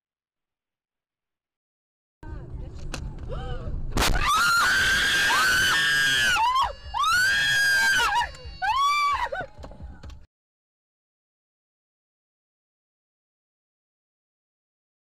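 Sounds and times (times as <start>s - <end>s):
person screaming: 3.3s - 9.5s.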